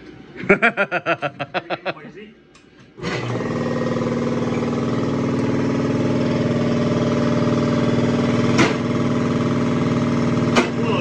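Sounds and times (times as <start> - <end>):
air compressor running: 2.6 - 11.0.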